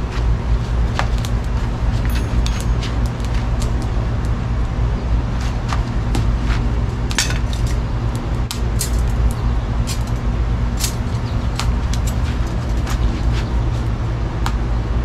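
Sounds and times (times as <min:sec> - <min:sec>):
wood fire crackling and popping: 0:00.6 - 0:04.4, 0:06.9 - 0:14.0.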